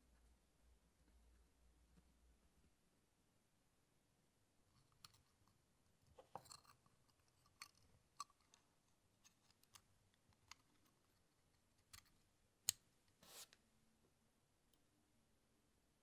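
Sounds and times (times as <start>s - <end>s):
plastic model parts clicking: 6.2s - 8.6s, 9.2s - 12.8s.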